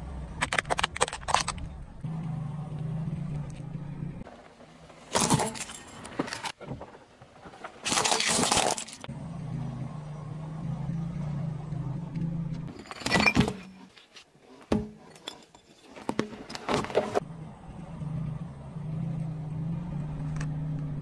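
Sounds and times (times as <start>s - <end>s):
low engine hum: 0.0s - 5.1s, 9.1s - 12.7s, 16.8s - 21.0s
tyre crushing plastic toy: 7.8s - 9.0s.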